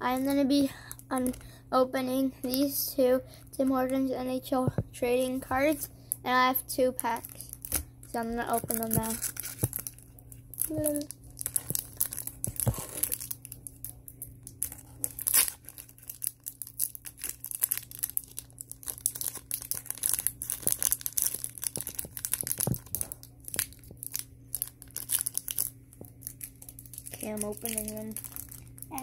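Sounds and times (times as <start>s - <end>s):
foil wrapper crinkling: 7.0s - 29.0s.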